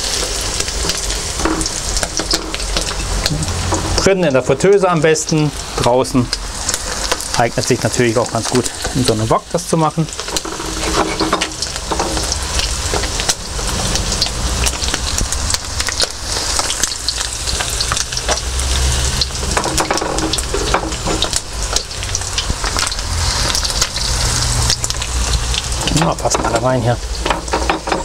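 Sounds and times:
chicken deep-frying in hot oil: 0:00.0 - 0:28.0
low rumble: 0:11.6 - 0:25.9.

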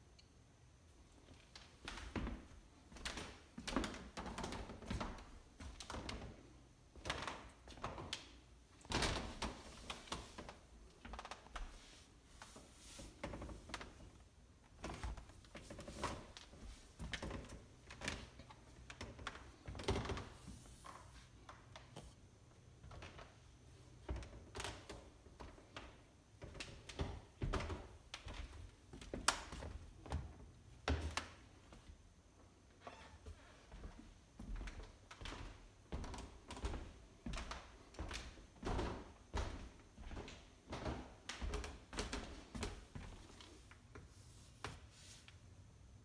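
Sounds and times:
footsteps on a wooden floor: 0:33.2 - 0:43.5.

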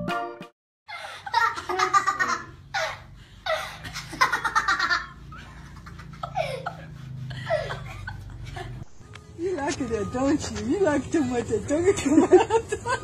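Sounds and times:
people laughing: 0:00.9 - 0:08.8, 0:11.9 - 0:13.0.

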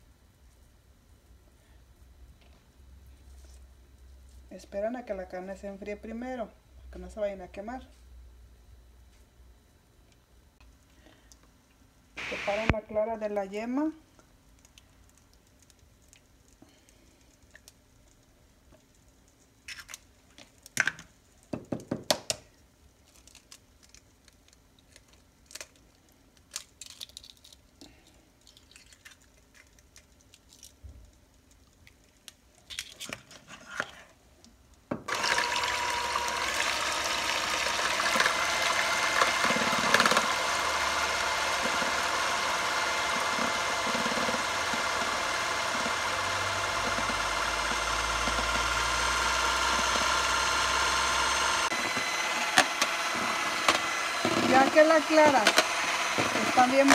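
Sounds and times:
electric hand mixer running: 0:12.2 - 0:12.7, 0:35.1 - 0:56.9
eggs cracking: 0:28.4 - 0:33.1.

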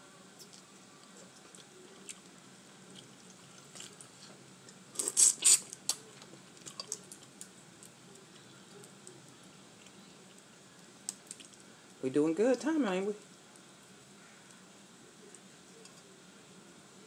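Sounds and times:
squishing: 0:00.4 - 0:11.8
crawfish shells cracking: 0:04.9 - 0:11.7.

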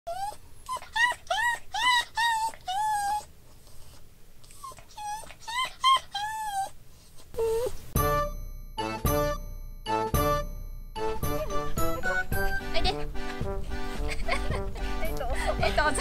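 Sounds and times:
dog whining: 0:00.1 - 0:08.0
chiming music jingle: 0:08.0 - 0:13.0.

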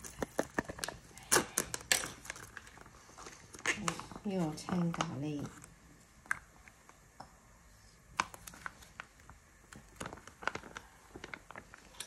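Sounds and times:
plastic sachet crinkling: 0:08.2 - 0:12.0.

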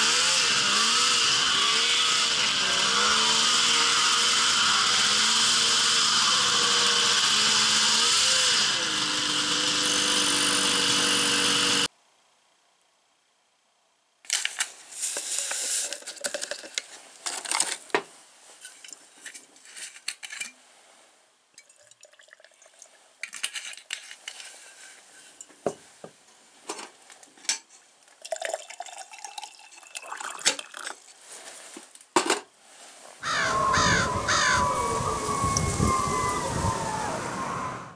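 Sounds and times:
faint trickle: 0:21.5 - 0:23.3
snowmobile engine running: 0:33.5 - 0:37.9.

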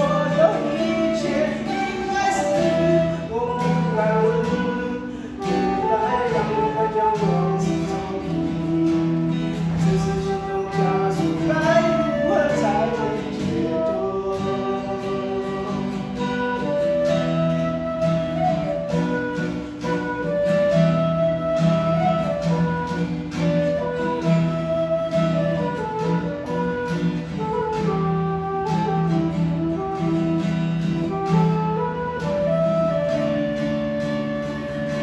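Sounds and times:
man singing: 0:00.0 - 0:17.1
acoustic guitar: 0:00.0 - 0:35.0.

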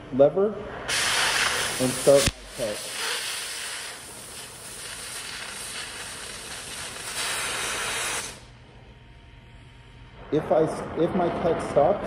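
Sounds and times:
cutting torch hissing: 0:00.9 - 0:08.6.

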